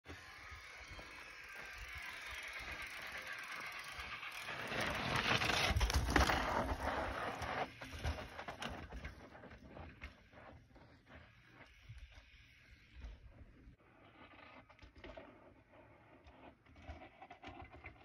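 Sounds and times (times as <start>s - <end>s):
bike freehub buzzing: 0.1s - 5.9s
tyres crunching over rock: 5.2s - 7.2s.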